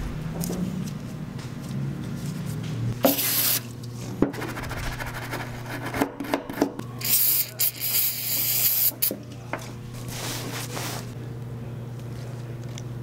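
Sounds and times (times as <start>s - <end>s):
spray can hissing: 3.1s - 3.6s, 7.0s - 9.1s.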